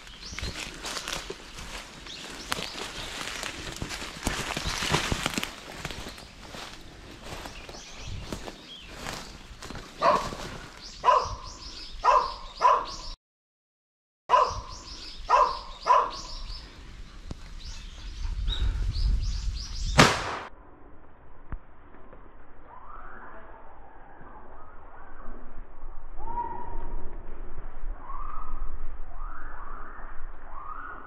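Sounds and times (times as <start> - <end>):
hound barking: 10.0 - 13.1, 14.3 - 14.7, 15.3 - 16.4
sharp crack: 20.0 - 20.6.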